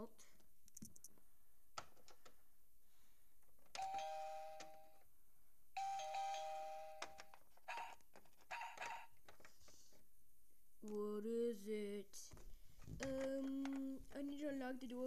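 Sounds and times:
two-note doorbell chime: 3.8 - 4.9, 5.8 - 7.0.

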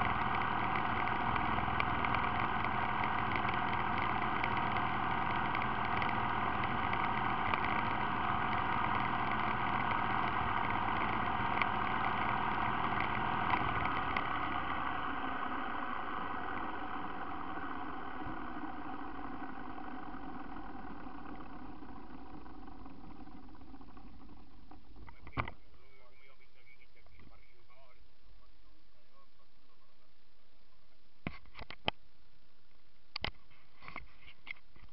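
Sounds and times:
atv engine idling: 0.0 - 26.6.

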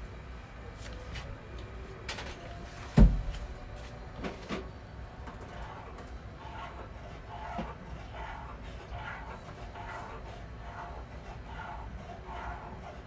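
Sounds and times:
heavy thump: 2.9 - 3.5.

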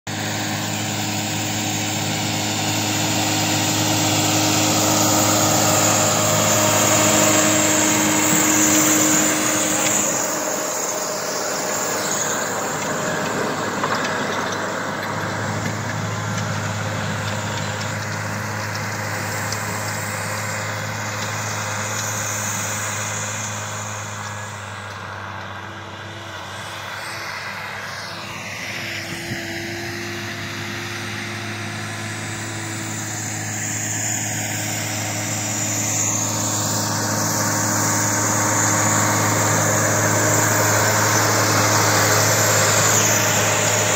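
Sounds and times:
tractor diesel engine running: 0.0 - 43.9.

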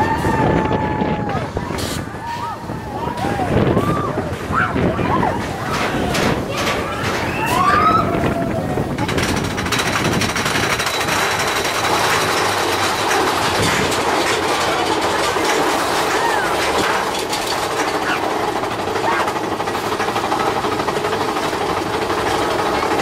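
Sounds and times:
riders whooping and shouting: 0.0 - 9.0, 15.9 - 17.0
roller coaster lift chain rattling: 0.0 - 23.0.

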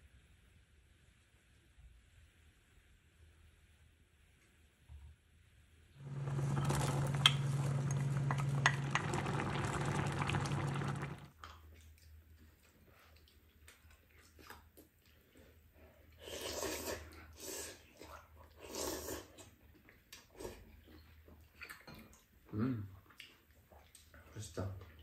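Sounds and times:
low hum: 6.0 - 11.3
stew bubbling in a pan: 6.0 - 12.2
slurping from spoons: 16.1 - 19.5.

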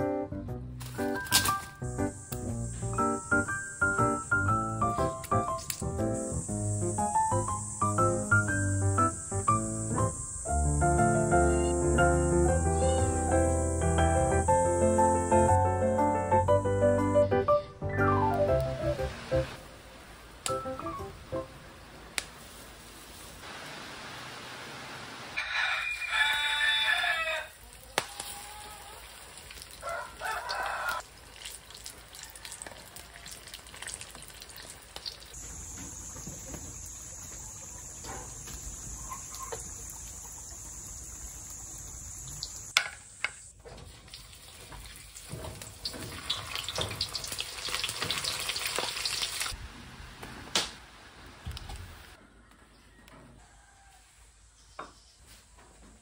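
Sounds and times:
oil sizzling: 0.8 - 16.0, 18.0 - 42.8, 43.8 - 50.2
rooster crowing: 25.4 - 29.1, 29.8 - 31.0, 32.2 - 33.4, 52.2 - 54.4.

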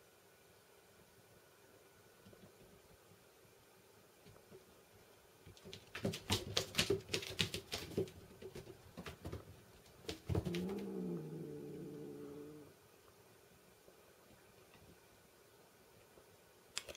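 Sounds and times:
kitten claws skittering on floor: 5.5 - 10.9.

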